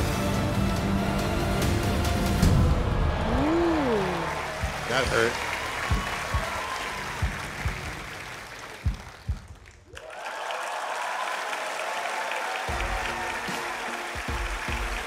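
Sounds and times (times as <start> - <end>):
audience applause: 2.8 - 15.0
music with heavy beats: 5.8 - 8.1, 12.7 - 15.0.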